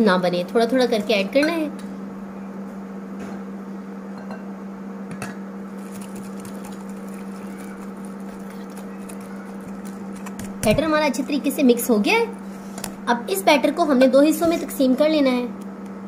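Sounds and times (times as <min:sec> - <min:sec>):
steady low hum: 0:00.0 - 0:16.0
whisk scraping batter: 0:05.7 - 0:11.1.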